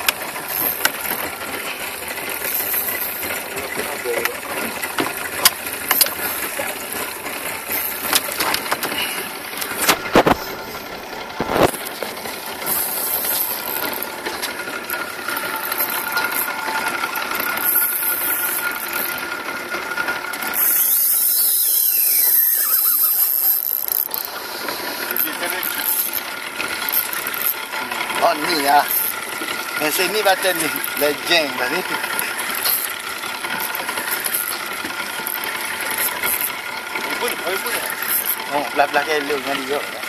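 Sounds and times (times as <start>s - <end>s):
reel clicks: 0.0s - 4.4s, 5.0s - 10.5s, 12.6s - 16.5s, 17.2s - 19.2s, 20.4s - 27.6s, 29.9s - 36.6s, 37.2s - 38.4s
fishing reel whirring: 0.0s - 39.9s.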